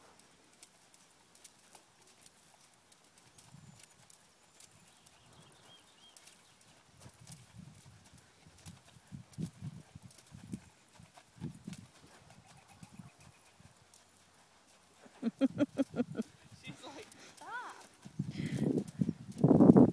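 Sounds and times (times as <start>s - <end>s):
hoofbeats on sand: 0.0s - 19.9s.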